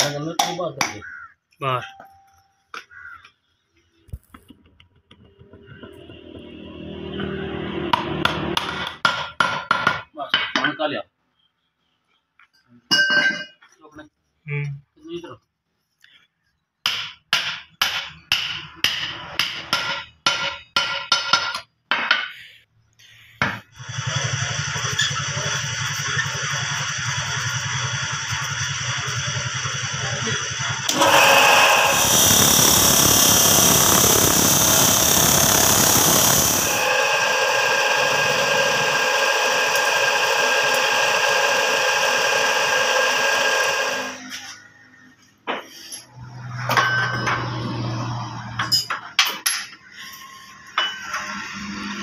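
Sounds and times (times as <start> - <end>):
saw grinding through metal: 23.8 - 44.2.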